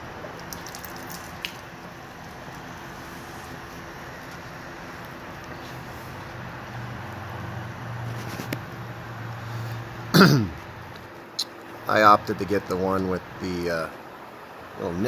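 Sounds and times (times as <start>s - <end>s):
oil draining into a pan: 0.2s - 1.8s.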